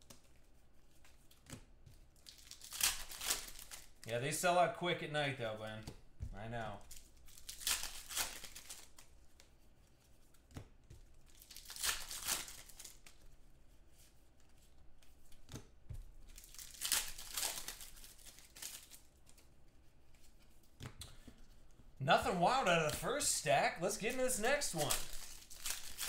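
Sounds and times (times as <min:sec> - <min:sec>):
foil wrapper crinkling: 0:02.2 - 0:04.0, 0:06.9 - 0:09.1, 0:11.3 - 0:13.2, 0:16.2 - 0:19.4, 0:23.8 - 0:26.0
trading cards swishing: 0:22.3 - 0:26.0.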